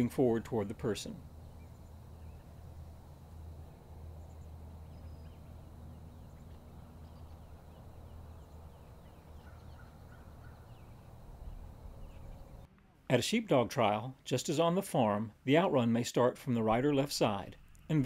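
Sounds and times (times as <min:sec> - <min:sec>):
short bird calls: 0:06.2 - 0:12.6.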